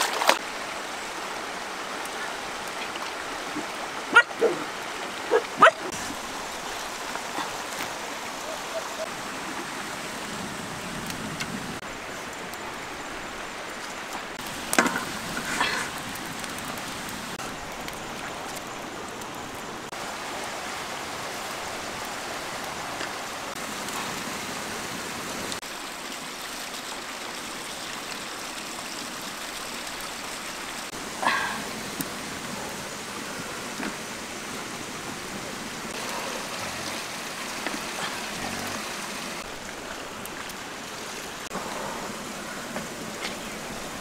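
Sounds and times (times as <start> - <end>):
rushing water: 0.0 - 44.0.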